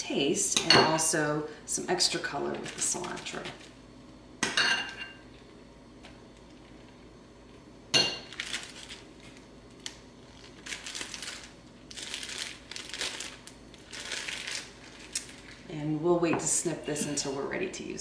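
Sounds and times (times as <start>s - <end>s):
plastic bag crinkling: 8.3s - 15.7s.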